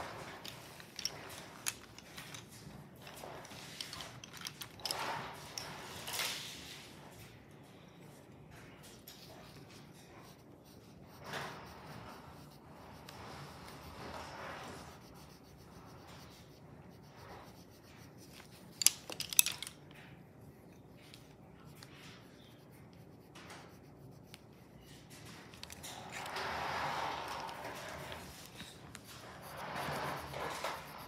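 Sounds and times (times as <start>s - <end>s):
pencils scratching on paper: 0.0s - 7.3s, 8.2s - 19.7s, 20.8s - 31.0s.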